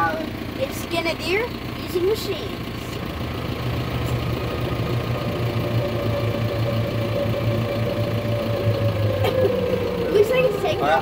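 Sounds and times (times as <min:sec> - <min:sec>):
diesel tractor engine drone: 0:00.0 - 0:11.0.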